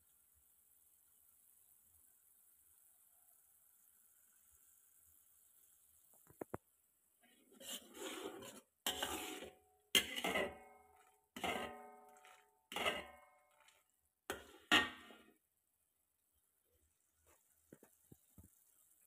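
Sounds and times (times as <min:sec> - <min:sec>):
metal spoon scraping wok: 0:07.4 - 0:15.4.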